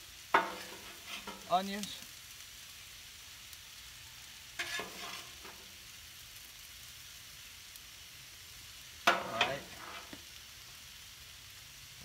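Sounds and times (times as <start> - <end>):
burgers sizzling on griddle: 0.0 - 12.0
metal spatula scraping griddle: 0.3 - 2.0, 4.6 - 5.7, 9.0 - 10.2.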